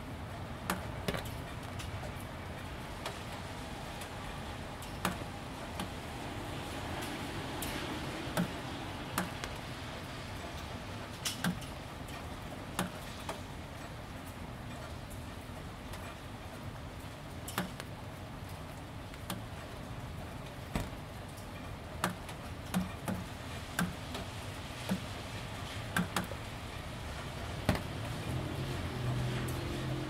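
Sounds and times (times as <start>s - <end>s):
gentle steady rain: 0.0s - 30.0s
drops ticking on metal roof: 10.5s - 14.0s, 17.4s - 28.3s.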